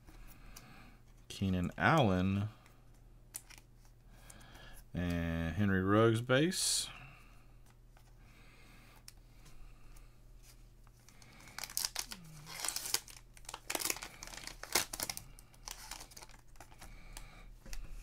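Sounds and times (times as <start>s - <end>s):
faint rustling of cards: 7.1s - 18.0s
plastic wrapper crackling and ripping: 11.1s - 17.3s.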